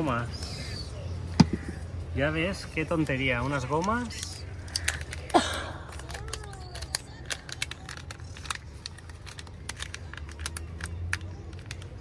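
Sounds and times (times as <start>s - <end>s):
package crinkling and tearing: 5.9s - 11.9s.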